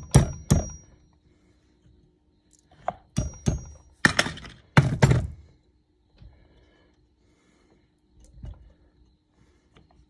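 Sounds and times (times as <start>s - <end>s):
hammer tapping metal pins: 0.0s - 1.0s, 3.1s - 5.3s.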